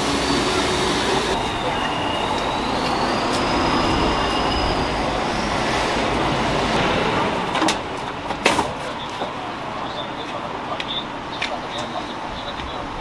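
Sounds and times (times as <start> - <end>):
train wheels squealing: 0.0 - 6.1
train rumbling: 0.0 - 13.0.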